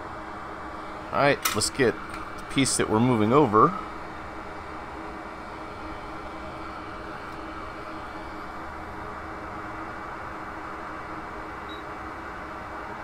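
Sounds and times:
fan hissing: 0.0 - 10.6
faint steady hum: 0.0 - 13.0.

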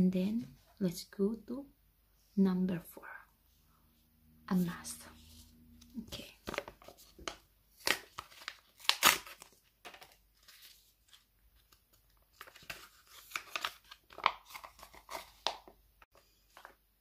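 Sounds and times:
plastic sachet crinkling and tearing: 6.4 - 15.7.

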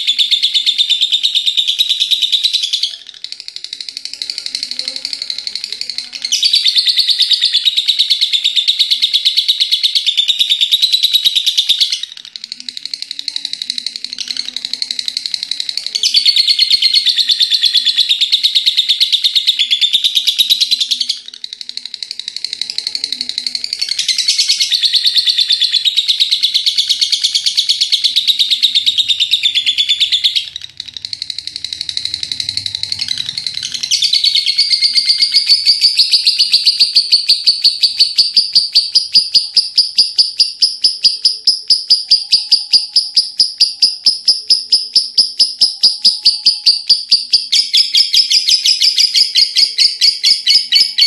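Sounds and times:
lovebird chattering trill: 0.0 - 51.0.

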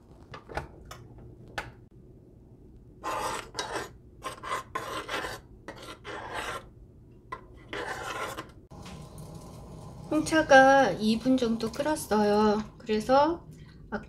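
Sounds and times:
metal spoon scraping saucepan: 3.0 - 6.7, 7.4 - 8.6.

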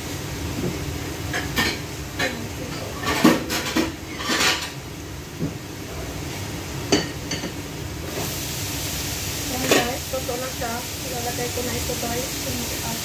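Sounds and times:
dishes and utensils clattering: 1.3 - 4.8.

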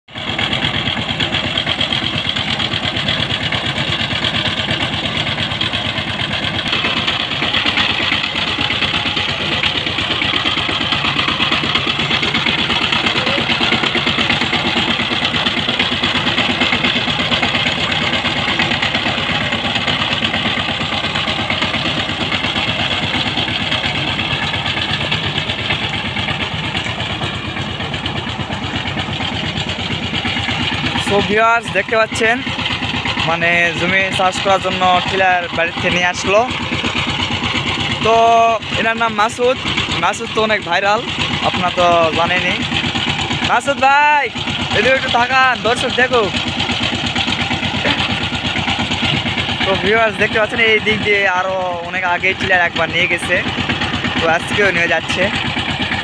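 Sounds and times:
diesel engine chugging: 0.1 - 56.0.

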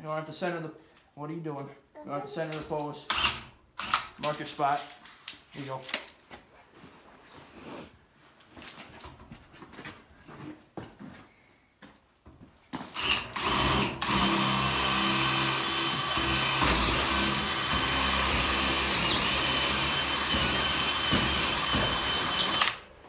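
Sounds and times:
cordless drill boring into wood: 3.1 - 4.1, 13.0 - 22.9.

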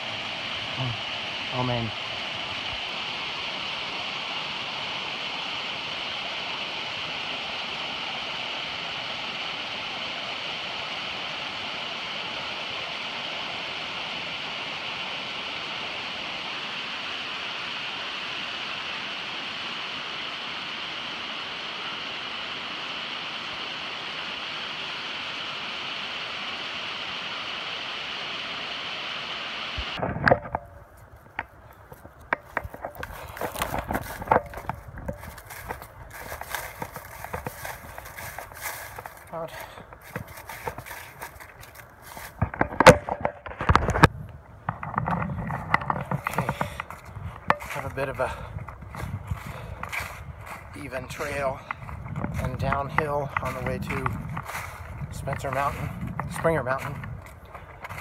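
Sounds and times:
creek water rushing over rocks: 0.0 - 30.0.

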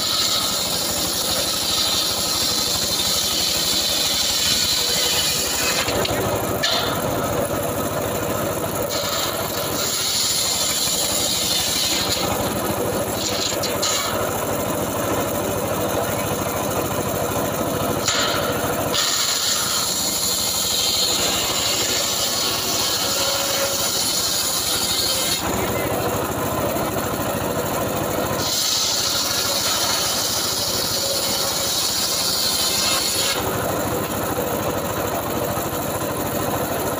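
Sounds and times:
saw blade cutting wood hiss: 0.0 - 7.0, 8.9 - 12.4, 18.0 - 25.5, 28.4 - 33.4
saw bench engine running: 0.0 - 36.9.

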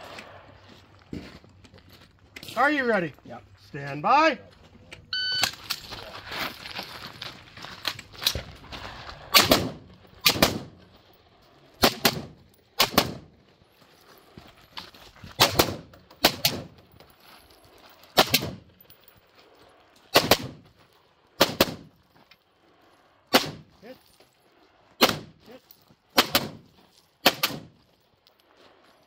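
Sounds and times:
rifle shots with echo: 9.3 - 10.8, 11.8 - 13.3, 15.4 - 16.7, 18.2 - 18.6, 20.1 - 20.6, 23.3 - 23.7, 25.0 - 25.4, 26.2 - 26.6, 27.2 - 27.7.

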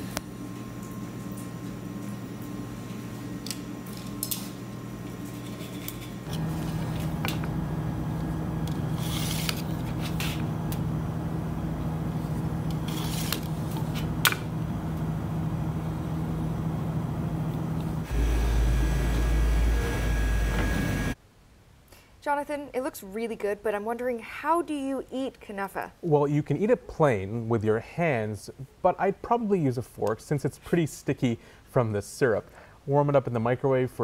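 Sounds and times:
steady machine hum: 0.0 - 21.2.

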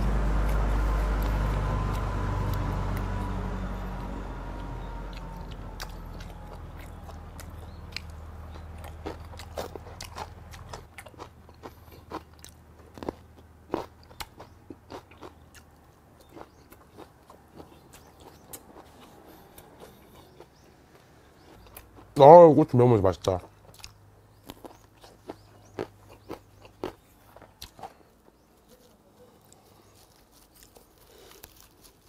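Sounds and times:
low background rumble: 0.0 - 22.2
person chewing food: 0.0 - 22.2, 23.4 - 32.0.

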